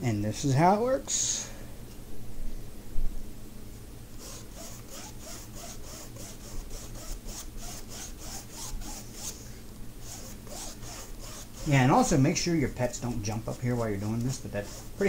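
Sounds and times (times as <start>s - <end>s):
paintbrush scrubbing: 4.2s - 9.4s, 10.0s - 15.0s.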